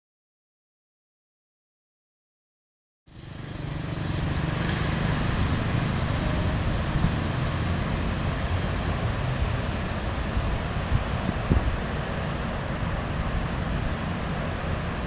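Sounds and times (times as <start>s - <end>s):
low engine rumble: 3.1s - 15.0s
outdoor noise hiss: 3.1s - 15.0s.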